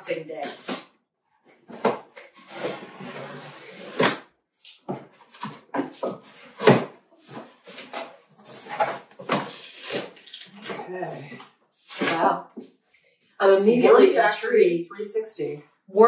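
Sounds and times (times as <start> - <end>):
cardboard flaps knocking and scraping: 4.9 - 9.6.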